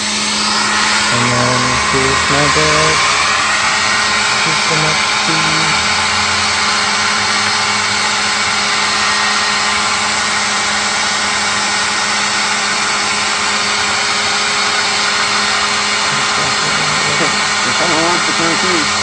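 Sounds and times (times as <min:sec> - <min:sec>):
low motor hum: 0:00.2 - 0:10.3.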